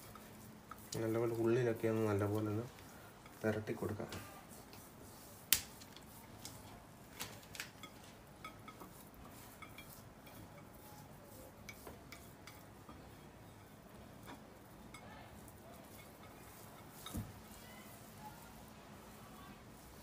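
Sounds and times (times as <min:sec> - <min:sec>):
hands rubbing marinade into fish: 0:00.0 - 0:06.6.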